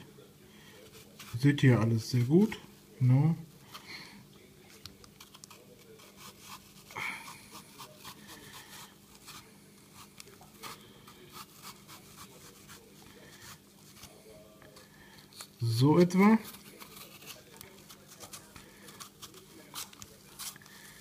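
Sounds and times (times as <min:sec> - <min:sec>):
knife scratching apple: 0:00.8 - 0:01.6, 0:05.0 - 0:14.2, 0:15.4 - 0:21.0.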